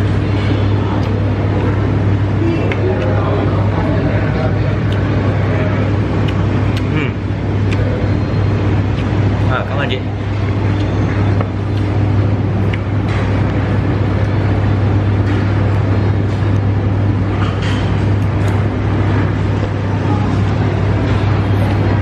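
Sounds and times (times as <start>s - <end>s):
loud low mechanical hum: 0.0s - 22.0s.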